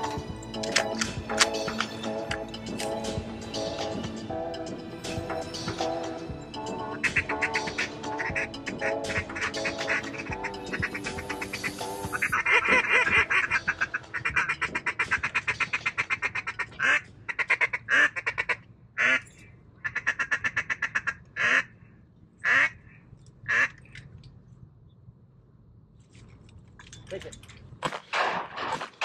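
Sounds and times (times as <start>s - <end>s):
duck chattering calls: 6.8s - 21.7s, 22.4s - 24.0s
duck quacking: 6.9s - 19.2s, 19.8s - 21.7s, 22.4s - 23.8s.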